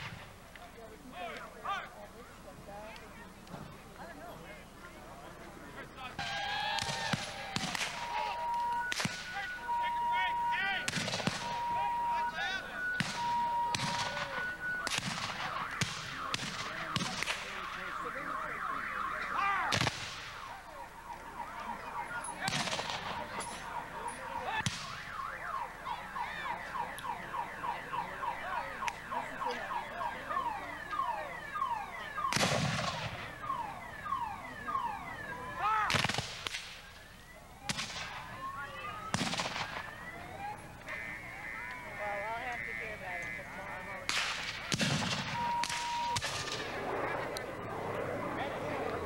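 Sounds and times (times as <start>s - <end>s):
muskets firing: 6.2s - 9.7s, 10.8s - 12.2s, 12.8s - 17.9s, 19.7s - 20.6s, 21.4s - 25.0s, 32.2s - 33.3s, 35.9s - 36.8s, 37.7s - 38.3s, 39.1s - 39.9s, 44.1s - 47.0s.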